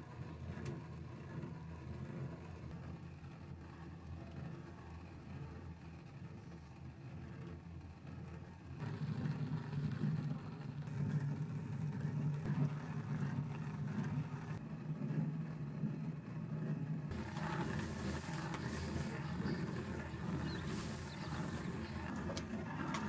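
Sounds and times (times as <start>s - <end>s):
gritty grating: 17.1s - 23.0s.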